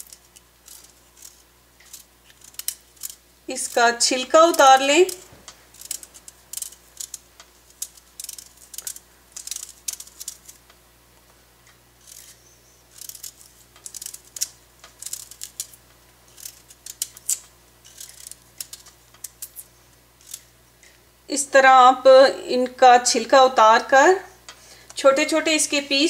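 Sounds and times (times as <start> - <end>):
knife scraping beetroot skin: 0.0 - 10.6, 12.0 - 20.4.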